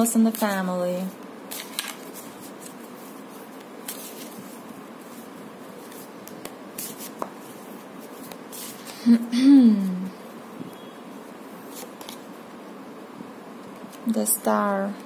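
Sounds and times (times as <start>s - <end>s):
cards rustling and tapping: 1.5s - 5.2s, 5.8s - 9.0s.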